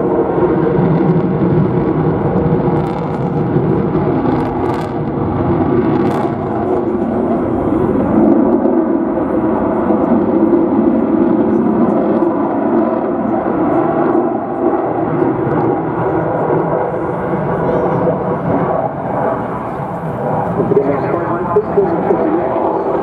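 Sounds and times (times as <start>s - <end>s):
jet engines roaring overhead: 0.0s - 23.0s.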